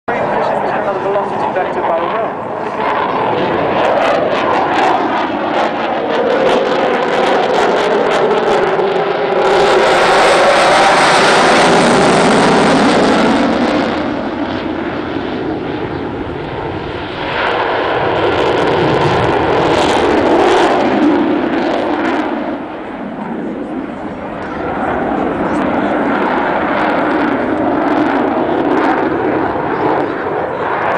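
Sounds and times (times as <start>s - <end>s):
jet engine roar overhead: 0.1s - 30.9s.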